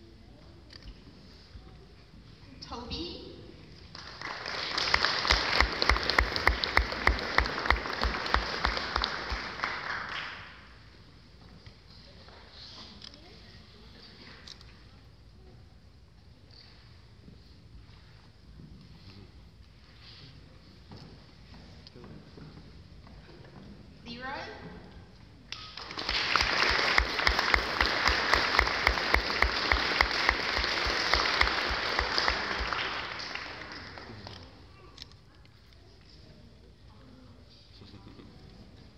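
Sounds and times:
audience applauding: 3.9 - 10.6, 25.6 - 34.4
close loud clapping: 3.9 - 10.7, 25.5 - 34.5.

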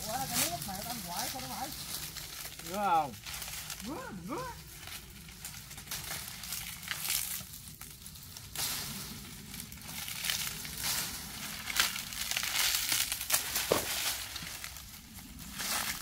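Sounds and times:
dry fronds rustling and crackling: 0.0 - 16.0.

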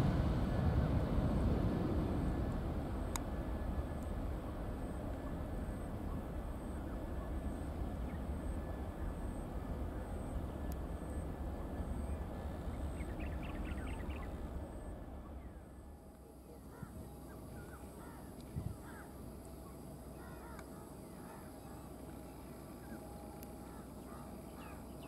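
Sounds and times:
distant jet engine rumble: 0.0 - 25.0
faint airfield hum: 0.0 - 25.0
birds calling: 12.7 - 14.4, 16.4 - 25.0.

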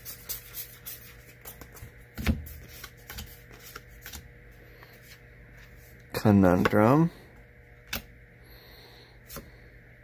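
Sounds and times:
cards clicking and sliding: 0.0 - 5.7.

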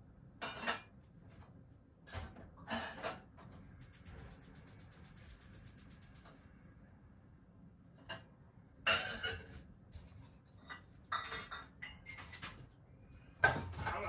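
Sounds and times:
dishes and cutlery clinking: 0.4 - 1.0, 8.0 - 12.8, 13.4 - 14.0.

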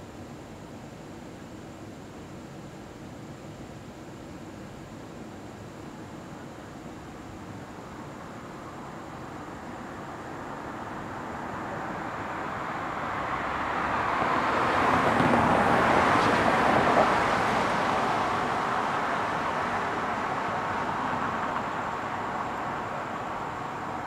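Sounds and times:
cars driving past: 10.7 - 24.0.

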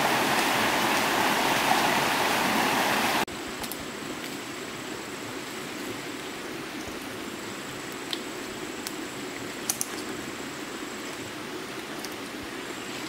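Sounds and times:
flowing water rushing: 0.0 - 3.3.

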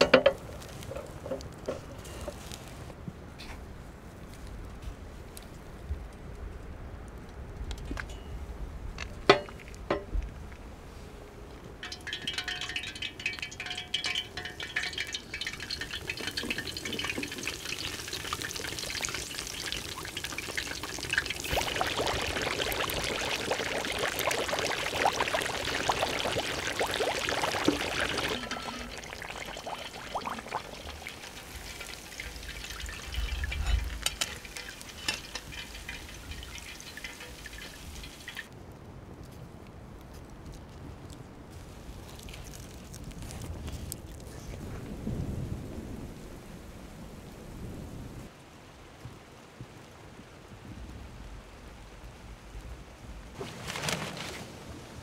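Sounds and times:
chicken deep-frying in oil: 11.8 - 38.6.

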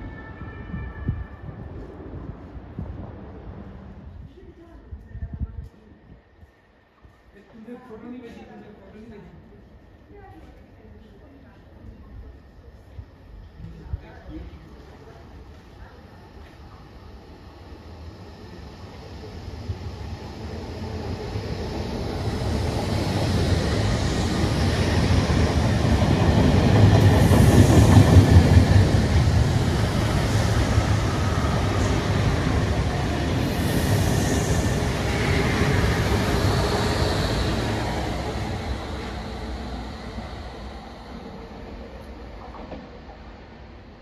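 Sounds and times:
electric train passing: 14.7 - 44.0.

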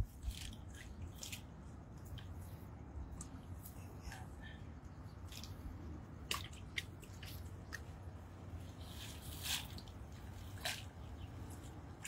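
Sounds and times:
low steady rumble: 0.0 - 12.0
water drips and splashes: 6.2 - 8.1.

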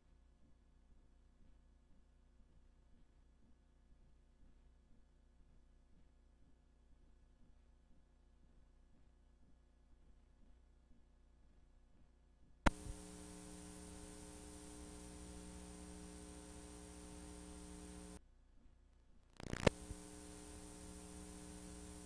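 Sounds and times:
click: 12.7 - 18.2, 19.4 - 22.0
crackle: 12.7 - 18.2, 19.3 - 22.0
electrical buzz and hiss: 12.7 - 18.2, 19.4 - 22.0.

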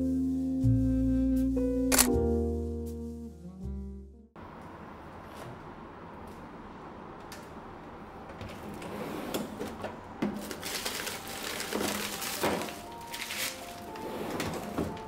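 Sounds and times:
freezer drawer pulled out: 8.6 - 15.0
frozen packs knocking: 10.2 - 15.0
plastic bags crinkling: 10.3 - 15.0.

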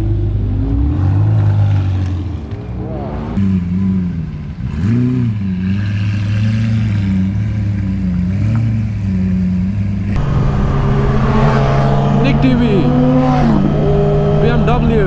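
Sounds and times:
vehicle engine running and revving: 0.0 - 15.0.

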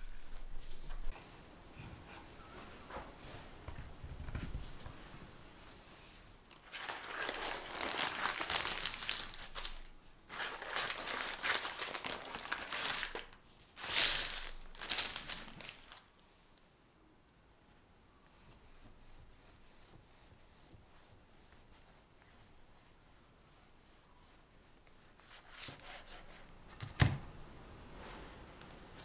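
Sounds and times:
parchment paper crinkling: 6.5 - 16.1.

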